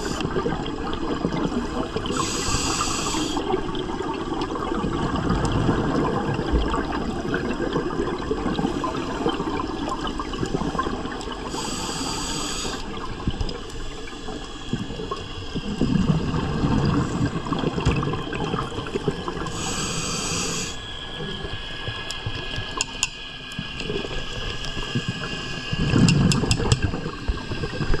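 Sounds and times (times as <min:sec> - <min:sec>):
exhaled bubbles gurgling: 0:00.0 - 0:28.0
regulator hissing inhalations: 0:01.8 - 0:03.5, 0:11.5 - 0:13.0, 0:19.4 - 0:20.8.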